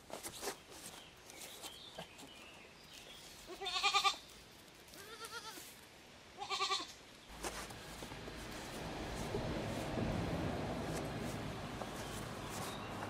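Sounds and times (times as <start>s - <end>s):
goats bleating: 3.5s - 4.2s, 5.0s - 5.7s, 6.4s - 6.9s.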